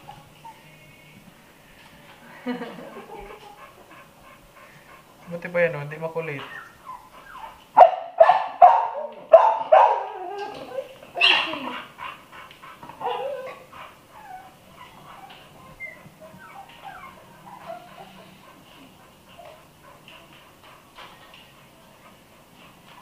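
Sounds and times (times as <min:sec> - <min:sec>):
puppies yelping and barking: 0:03.0 - 0:20.4.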